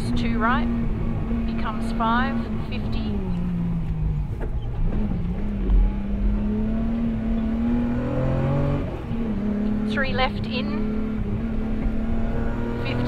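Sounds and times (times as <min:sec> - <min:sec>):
car engine revving: 0:00.0 - 0:13.0.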